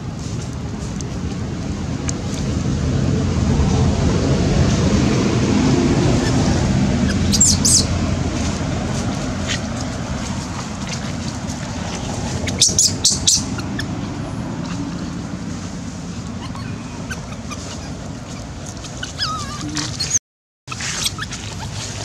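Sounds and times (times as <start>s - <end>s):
steady low rumble: 0.0s - 20.0s
birds chirping: 6.0s - 20.2s.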